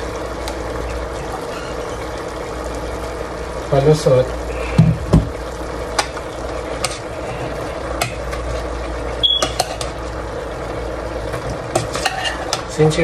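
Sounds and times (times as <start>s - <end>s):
metal spoon scraping a pot: 11.8s - 12.6s.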